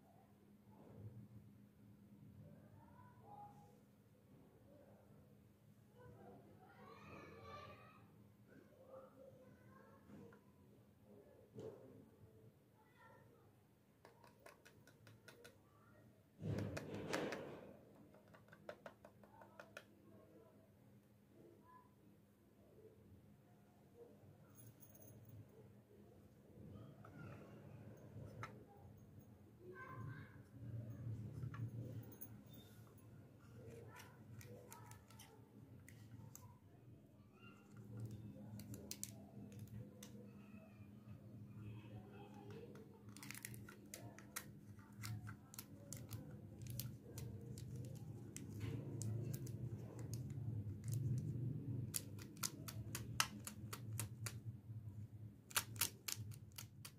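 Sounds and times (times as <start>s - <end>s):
fingernails tapping on plastic toy: 14.0s - 15.6s, 18.0s - 19.9s
plastic toy clicks: 42.5s - 51.3s, 51.9s - 54.4s, 55.5s - 56.9s.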